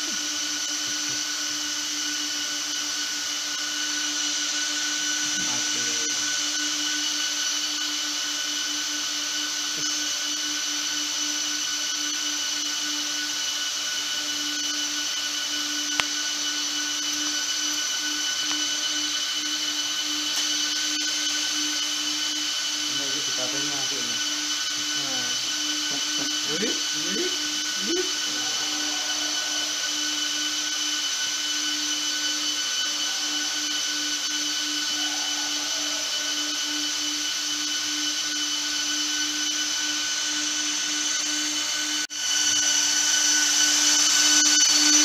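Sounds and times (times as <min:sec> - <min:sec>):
cooling fans whining: 0:00.0 - 0:45.0.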